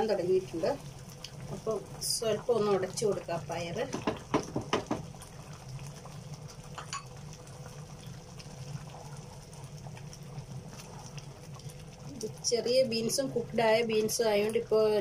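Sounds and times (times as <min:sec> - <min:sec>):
gravy bubbling in a pan: 0:00.0 - 0:15.0
low steady hum: 0:00.0 - 0:15.0
masher knocking against pan: 0:03.9 - 0:05.1.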